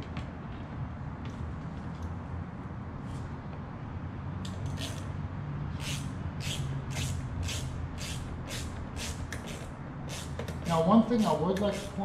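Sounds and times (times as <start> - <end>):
hand tool rasping strokes: 5.8 - 12.0.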